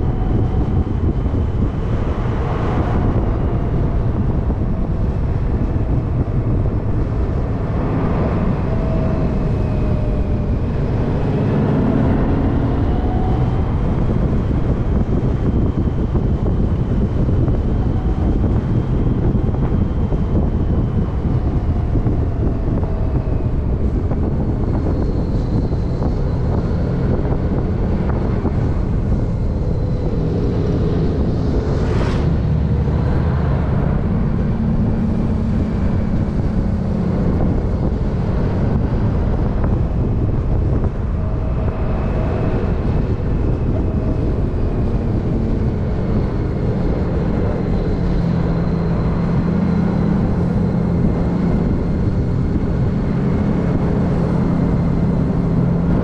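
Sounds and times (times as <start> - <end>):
vehicle engine running: 0.0 - 56.0
wind noise on microphone: 0.0 - 56.0.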